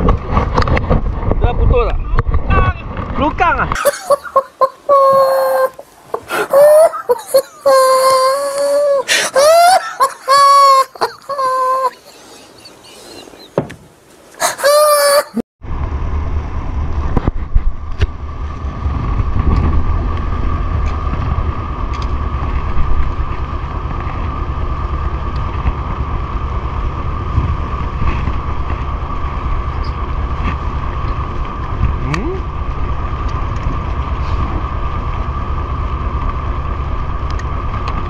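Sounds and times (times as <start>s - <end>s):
wind rumble on microphone: 0.0s - 3.8s, 15.6s - 38.0s
wavering voice-like sounds: 3.8s - 13.4s, 14.4s - 15.4s
boat engine whining: 3.8s - 13.6s.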